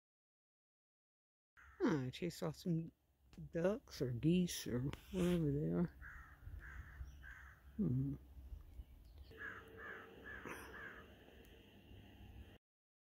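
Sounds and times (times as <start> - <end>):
low voice-like sound: 7.8 - 8.2
geese honking: 9.3 - 11.2.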